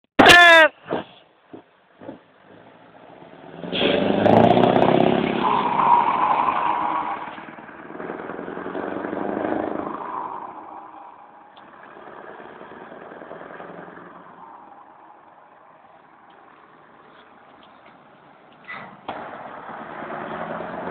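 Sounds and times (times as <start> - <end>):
diesel truck engine accelerating: 2.0 - 20.9.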